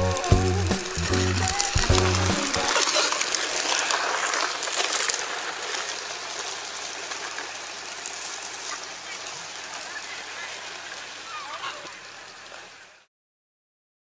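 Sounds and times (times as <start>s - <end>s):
background music: 0.0s - 2.8s.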